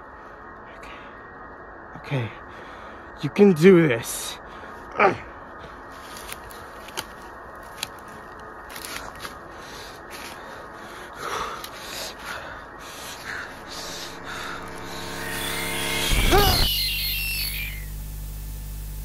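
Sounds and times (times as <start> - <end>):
faint steady hum: 4.4 - 19.0
dry leaves rustling and crunching: 5.9 - 10.5.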